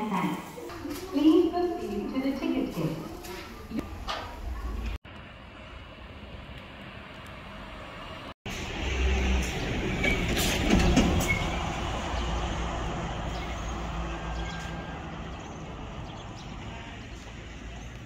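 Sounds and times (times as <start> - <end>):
road traffic: 3.1 - 18.0
truck engine passing: 5.2 - 18.0.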